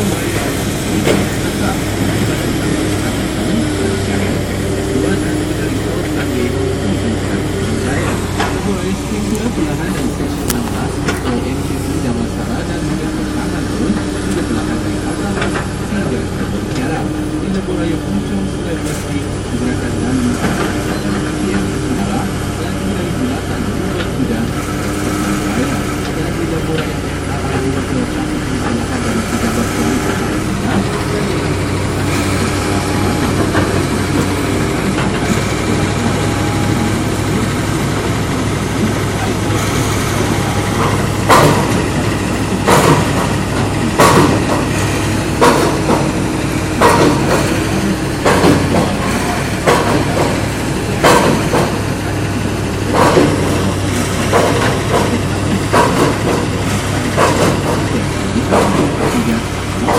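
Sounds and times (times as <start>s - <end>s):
excavator diesel engine running: 0.0s - 59.9s
loud knocks: 39.4s - 52.0s, 52.8s - 59.9s.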